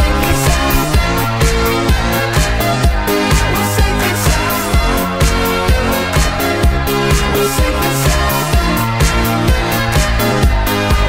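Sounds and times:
electronic dance music: 0:00.0 - 0:02.6.

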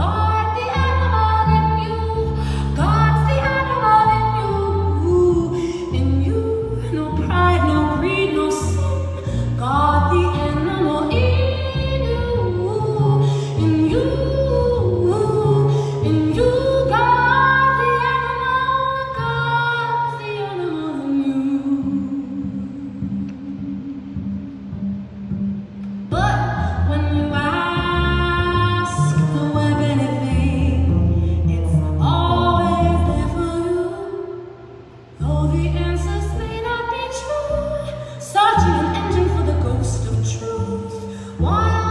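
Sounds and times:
double bass: 0:00.0 - 0:41.9.

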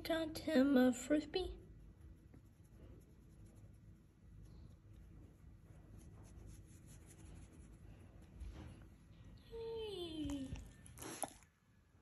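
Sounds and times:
hand rubbing dog fur: 0:01.8 - 0:09.1.

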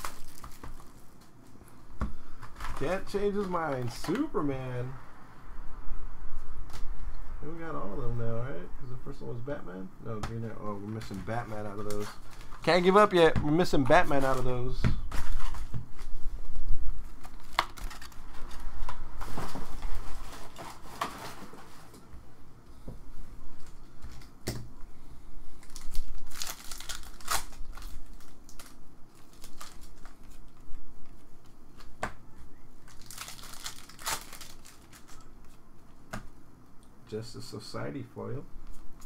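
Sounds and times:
foil wrappers crinkling and tearing: 0:00.0 - 0:01.2, 0:02.4 - 0:04.3, 0:11.3 - 0:13.2, 0:17.1 - 0:21.7, 0:25.6 - 0:31.2, 0:32.8 - 0:35.6.

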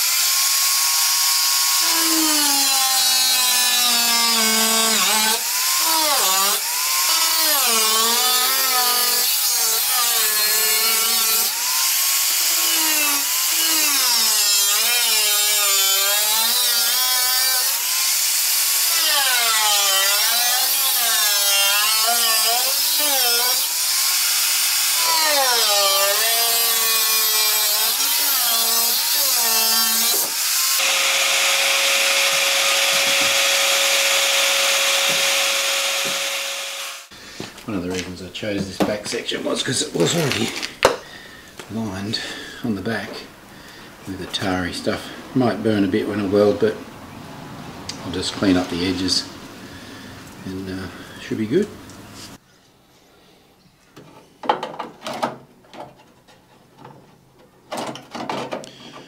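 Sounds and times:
angle grinder cutting metal: 0:00.0 - 0:37.1.

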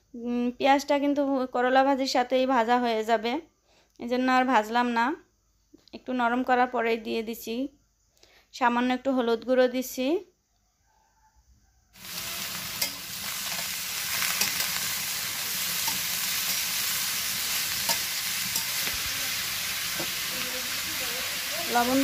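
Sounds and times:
metal spatula scraping a wok: 0:12.0 - 0:22.0
vegetables sizzling in oil: 0:12.0 - 0:22.0.

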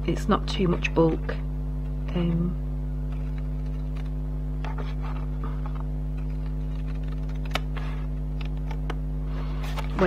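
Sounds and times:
electrical mains hum: 0:00.0 - 0:10.0
scissors cutting paper: 0:03.2 - 0:08.6
paper rustling: 0:03.2 - 0:08.8.

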